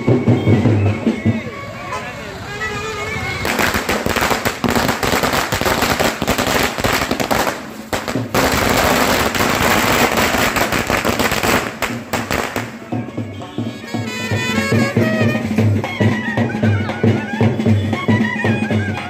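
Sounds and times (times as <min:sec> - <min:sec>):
firecrackers popping: 0:03.4 - 0:12.9.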